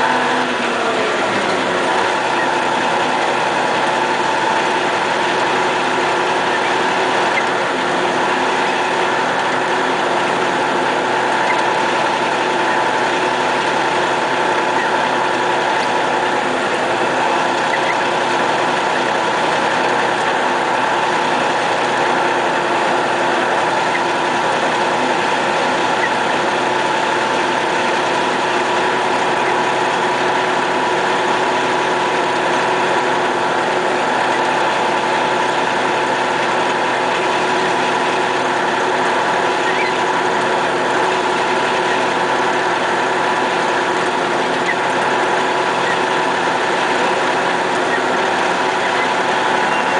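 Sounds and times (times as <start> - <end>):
truck diesel engine droning: 0.0 - 49.9.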